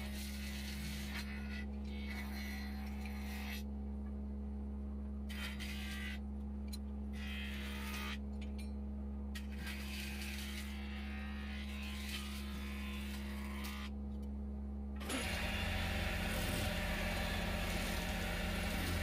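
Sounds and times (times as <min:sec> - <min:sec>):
lathe motor humming: 0:15.0 - 0:19.0.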